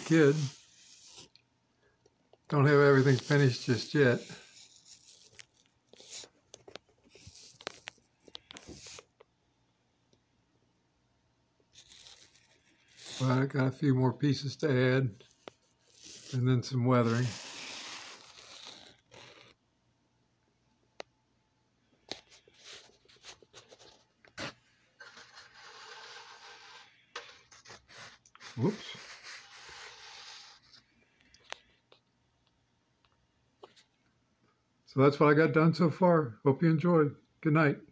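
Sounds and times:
plastic model rubs and clicks: 3.0 - 9.1.

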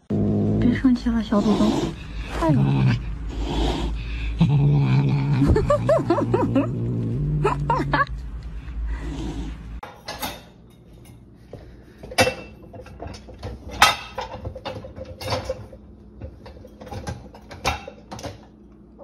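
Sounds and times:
dishes rattling in dishwasher rack: 9.8 - 11.1, 12.1 - 18.5.

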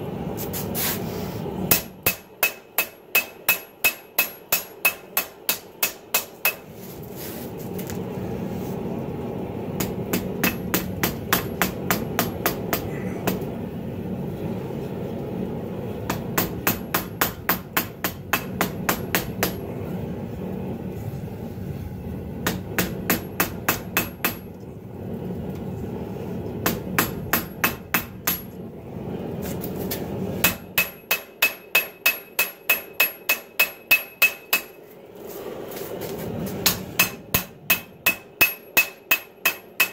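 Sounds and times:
hammer ringing on anvil: 1.7 - 6.6, 30.5 - 34.8, 37.0 - 39.9
low rushing noise: 19.4 - 30.8.

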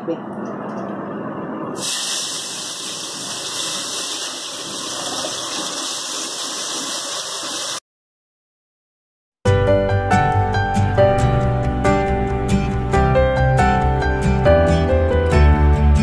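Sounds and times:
eggplant sizzling in hot oil: 1.8 - 7.8.

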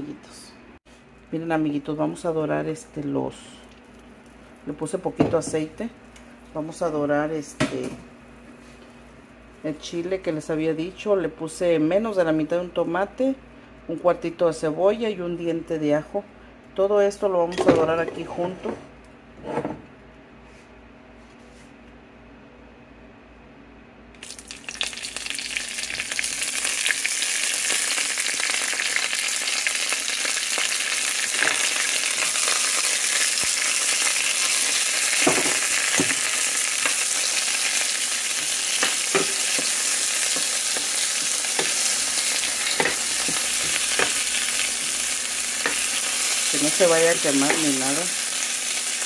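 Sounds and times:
food sizzling in frying pan: 24.2 - 49.0
spoon scraping pan: 38.4 - 46.3.

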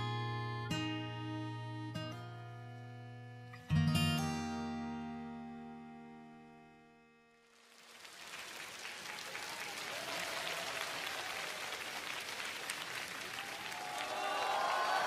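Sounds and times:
acoustic guitar chord: 0.0 - 7.4
audience applause: 7.6 - 15.0.

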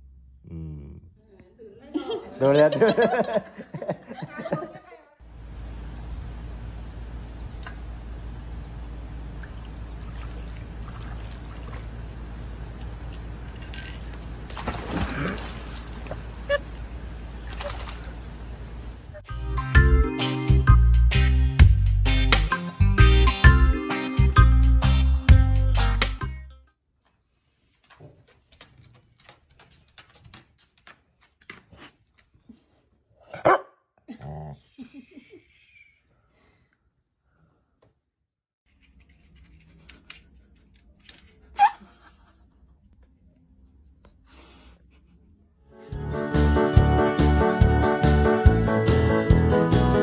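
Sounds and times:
low background hum: 0.0 - 19.2
dog splashing into pool: 13.4 - 16.7, 17.3 - 18.5
guitar music: 19.3 - 26.6, 45.8 - 50.0
rustles and light taps: 27.0 - 32.5.

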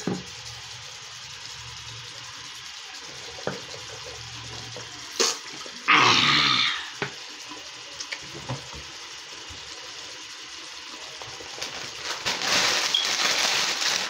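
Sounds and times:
foil snack bag crumpling: 11.2 - 14.0.

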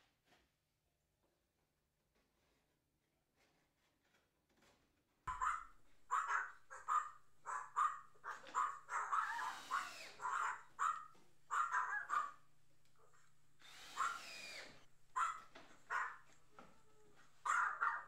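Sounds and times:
dog barking: 5.3 - 13.3, 13.9 - 18.0
cordless drill driving screws: 9.1 - 11.4, 12.8 - 16.6.

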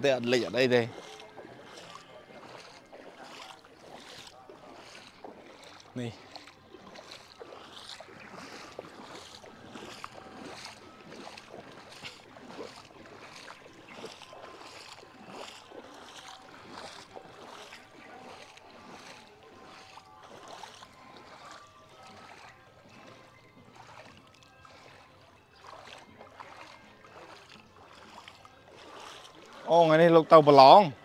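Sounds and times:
floodwater splashing and sloshing: 0.0 - 31.0.

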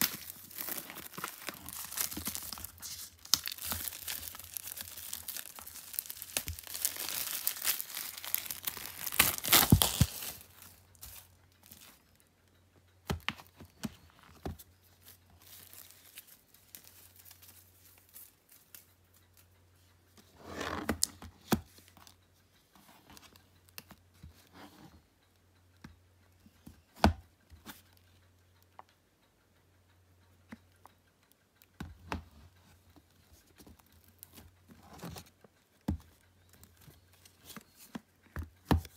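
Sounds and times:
packaging tearing: 0.0 - 10.6
packaging crinkles and clicks: 0.0 - 12.0, 14.5 - 18.9.

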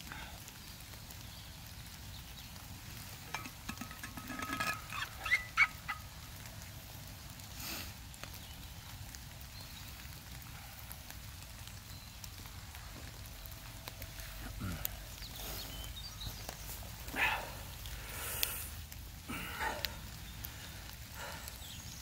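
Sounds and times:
bird calling: 3.3 - 6.2.

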